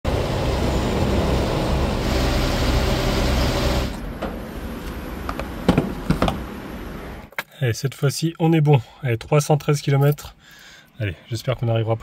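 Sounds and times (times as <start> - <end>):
motorhome engine running: 0.0 - 5.3.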